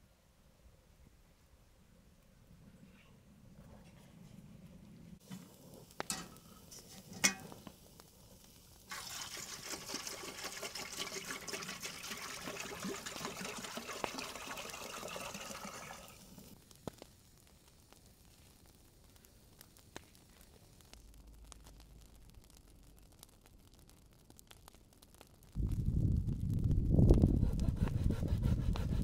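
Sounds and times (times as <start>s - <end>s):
burning wood crackling: 1.4s - 29.0s
kettle water hissing and bubbling: 5.2s - 22.3s.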